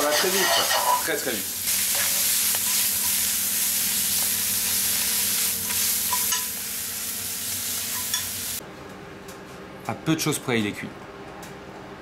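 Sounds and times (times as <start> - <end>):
spinach sizzling in butter: 0.0 - 8.6.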